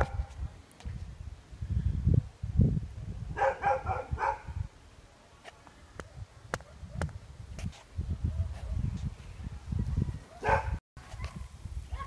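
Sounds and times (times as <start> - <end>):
dog barking: 3.4 - 4.6, 10.3 - 11.4.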